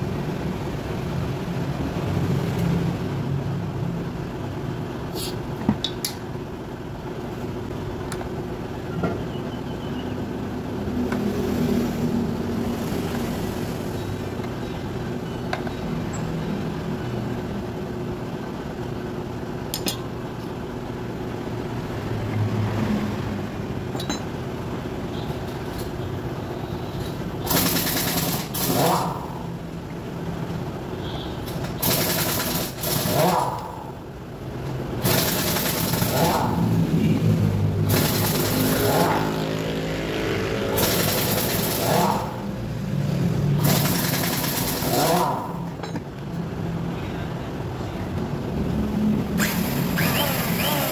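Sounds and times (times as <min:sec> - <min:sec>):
engine running: 0:00.0 - 0:50.9
steady mechanical hum: 0:00.0 - 0:50.9
metal tool clicks: 0:19.7 - 0:20.0.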